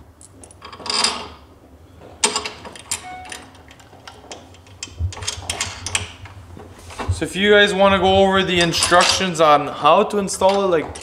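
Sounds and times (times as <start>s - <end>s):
metal bolts and key clinking: 2.2s - 6.1s.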